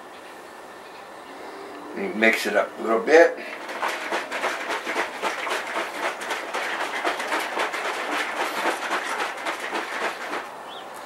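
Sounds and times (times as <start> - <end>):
juice sloshing in shaken pitcher: 3.5 - 10.5.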